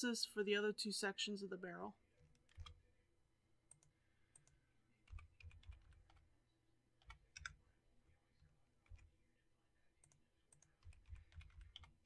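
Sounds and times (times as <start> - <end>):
keyboard and mouse clicks: 2.3 - 2.8, 3.7 - 6.2, 7.0 - 7.6, 10.0 - 12.0.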